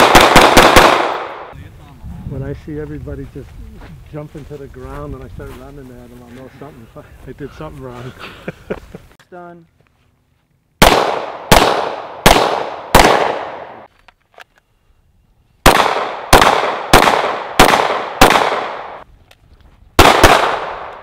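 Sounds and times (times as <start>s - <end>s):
pistol shots with echo: 0.0s - 1.6s, 10.8s - 13.9s, 15.6s - 19.0s, 20.0s - 21.0s.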